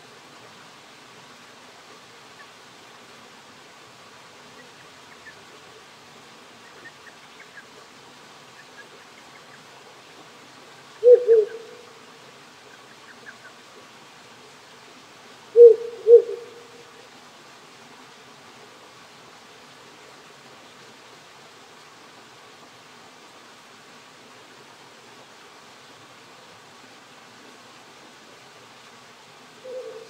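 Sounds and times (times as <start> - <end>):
stream hissing: 0.0 - 30.0
owl hooting: 11.0 - 11.9, 15.6 - 16.8, 29.6 - 30.0.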